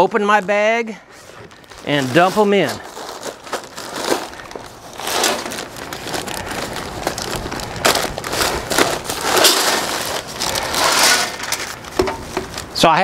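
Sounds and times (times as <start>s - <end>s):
plastic bag crinkling: 0.0s - 12.8s.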